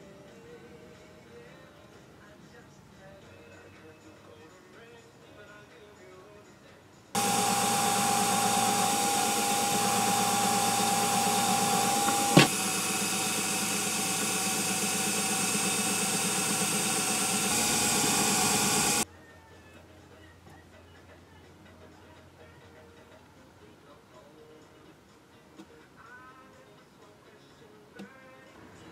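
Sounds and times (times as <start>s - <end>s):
drill press motor running: 7.2s - 19.0s.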